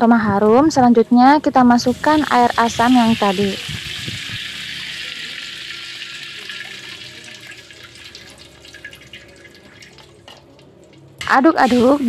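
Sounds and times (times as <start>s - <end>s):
liquid sizzling in hot wok: 1.8s - 10.5s, 11.5s - 12.0s.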